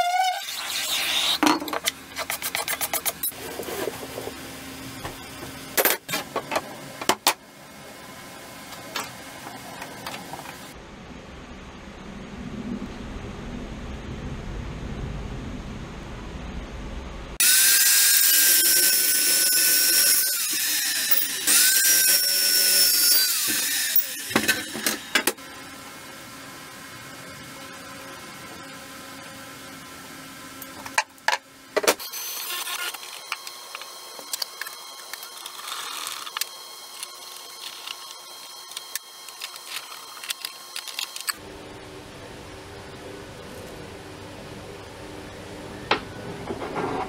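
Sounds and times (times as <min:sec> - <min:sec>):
chop saw cutting steel: 0:17.4 - 0:25.3.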